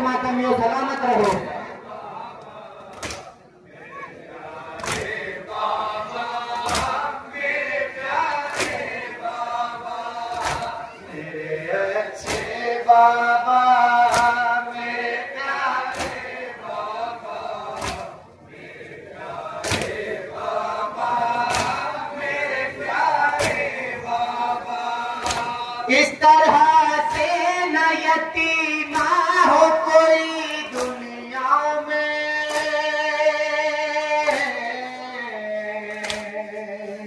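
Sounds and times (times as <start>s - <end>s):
men chanting a lament: 0.0s - 37.0s
hands beating chests in unison: 1.2s - 1.7s, 2.8s - 3.4s, 4.5s - 11.0s, 12.1s - 12.9s, 13.8s - 18.3s, 19.3s - 25.9s, 26.5s - 27.8s, 28.8s - 29.6s, 30.6s - 31.3s, 32.3s - 33.2s, 34.2s - 34.7s, 35.9s - 36.4s.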